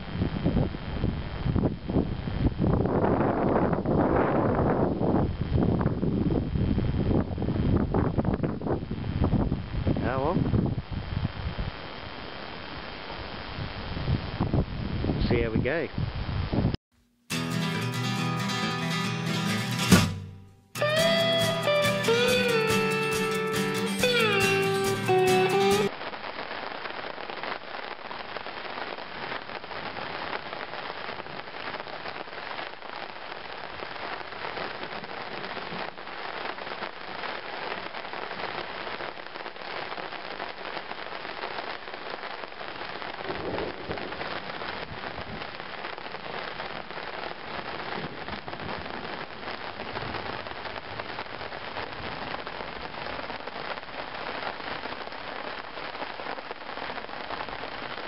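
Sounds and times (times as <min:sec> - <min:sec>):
rain pattering: 0:20.8 - 0:58.0.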